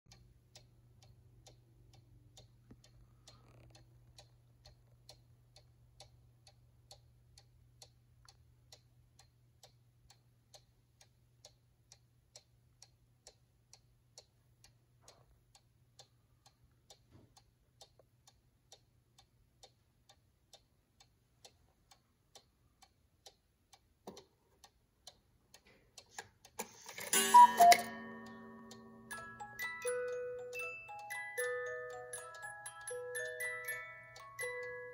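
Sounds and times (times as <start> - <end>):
clock ticking: 0.1 - 34.9
clockwork mechanism running: 26.6 - 34.9.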